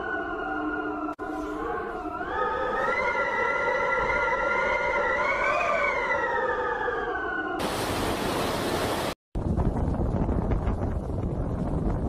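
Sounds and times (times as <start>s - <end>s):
wavering pitched howl: 0.0s - 7.6s
wind rushing on microphone: 8.9s - 12.0s.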